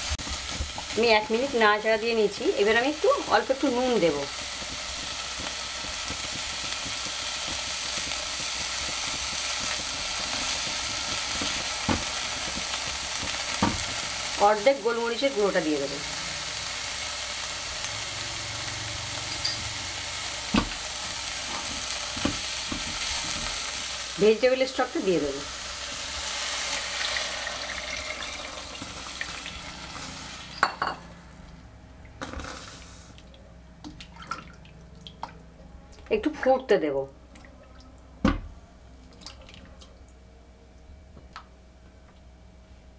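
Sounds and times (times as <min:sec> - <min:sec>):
vegetables sizzling in a pot: 0:00.0 - 0:33.2.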